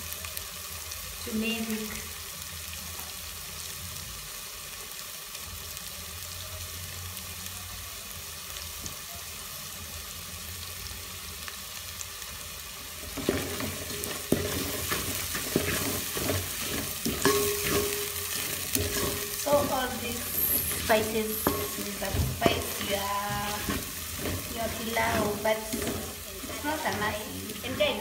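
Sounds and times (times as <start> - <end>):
onions sizzling in oil: 0.0 - 28.0
wooden spoon scraping a pot: 13.1 - 28.0.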